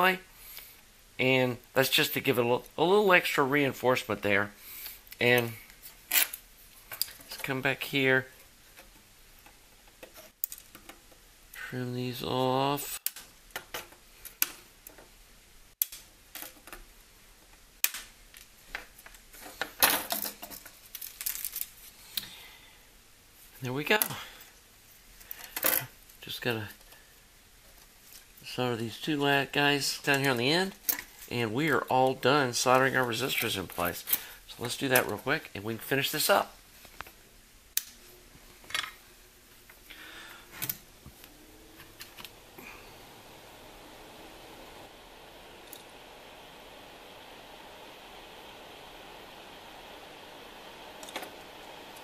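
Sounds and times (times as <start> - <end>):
soldering clicks and taps: 15.8 - 16.7.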